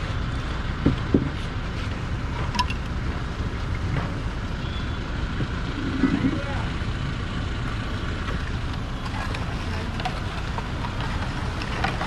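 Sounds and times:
street traffic rumble: 0.0 - 12.0
wind on microphone: 5.4 - 6.7.

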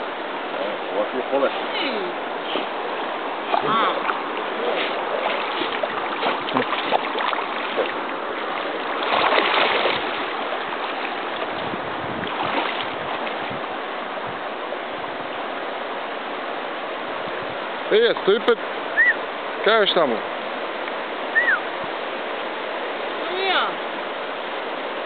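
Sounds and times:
water splashing: 0.0 - 15.5
river water rushing: 0.0 - 25.0.

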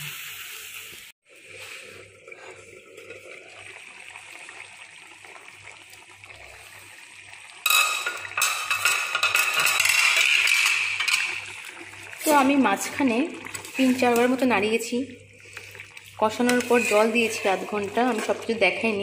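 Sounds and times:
curry bubbling and spluttering: 1.4 - 8.4, 9.4 - 19.0.

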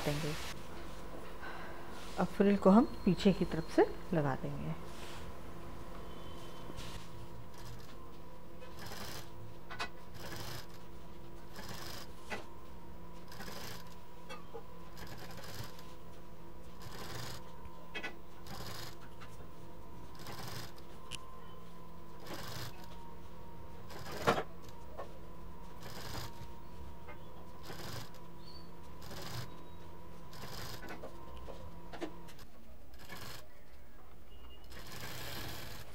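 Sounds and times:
steady low hum: 0.0 - 35.9
sewing machine stitching: 8.7 - 9.3, 10.1 - 10.8, 11.5 - 12.1, 13.3 - 14.0, 15.0 - 15.9, 16.8 - 17.4, 18.4 - 19.0, 20.1 - 20.8, 22.2 - 22.9, 23.9 - 24.4, 27.6 - 28.2, 29.0 - 29.6, 30.3 - 31.0, 32.3 - 33.5, 34.6 - 35.9.

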